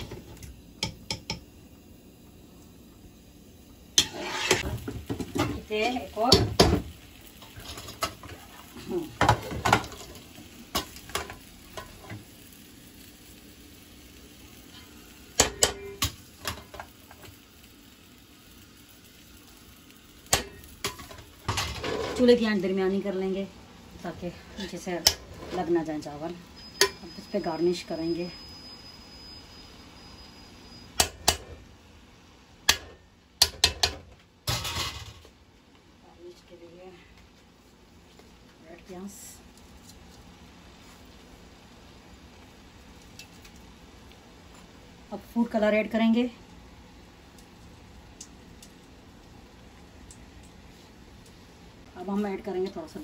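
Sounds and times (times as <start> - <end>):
metal ladle scraping steel pots: 4.0 - 4.7.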